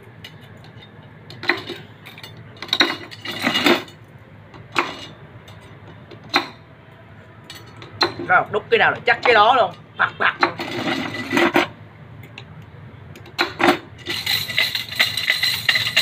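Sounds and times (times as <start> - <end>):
metallic clinks on steel spokes: 13.2 - 16.0.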